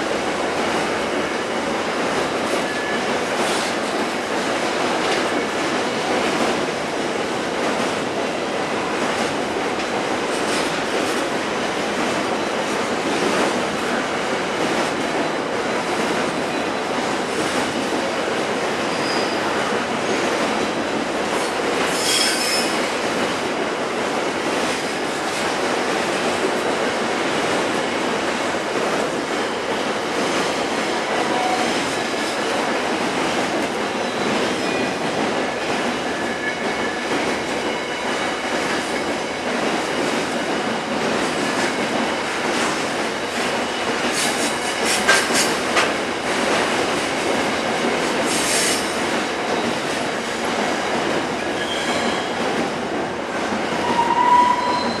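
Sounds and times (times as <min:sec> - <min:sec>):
train wheels rumbling on rails: 0:00.0 - 0:55.0
wheel squeals: 0:53.9 - 0:55.0.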